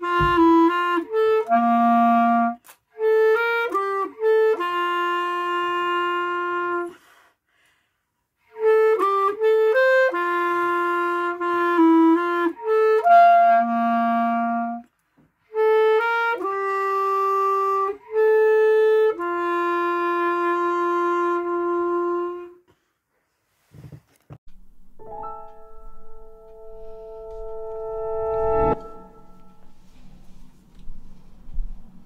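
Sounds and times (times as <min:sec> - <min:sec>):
clarinet playing slow melody: 0:00.0 - 0:07.2, 0:08.4 - 0:14.9, 0:15.5 - 0:22.6, 0:25.1 - 0:31.1.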